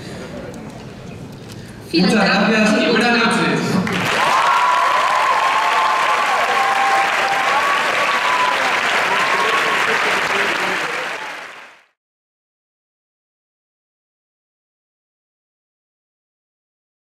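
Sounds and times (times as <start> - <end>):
audience applauding: 3.8 - 12.0
voices cheering: 3.9 - 11.7.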